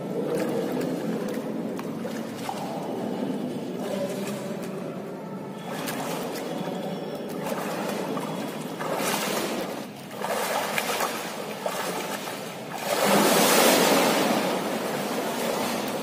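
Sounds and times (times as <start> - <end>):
swimmer splashing in pool: 5.5 - 16.0
big splash of diving swimmer: 8.8 - 16.0.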